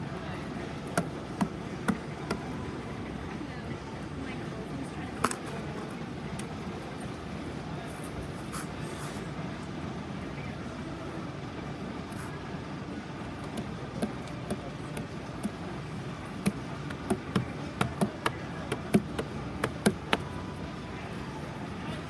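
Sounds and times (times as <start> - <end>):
steady background noise: 0.0 - 22.0
sharp knocks and clicks: 13.4 - 15.6, 16.3 - 20.2.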